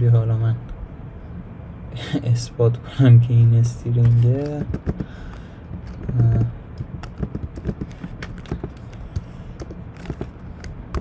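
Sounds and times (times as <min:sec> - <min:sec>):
typing on computer keyboard: 0:04.4 - 0:05.1, 0:05.8 - 0:08.9.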